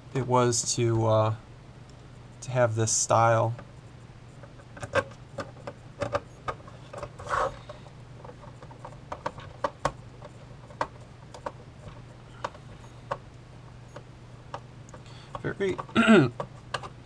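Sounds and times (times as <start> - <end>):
screwdriver scrape: 7.1 - 7.6.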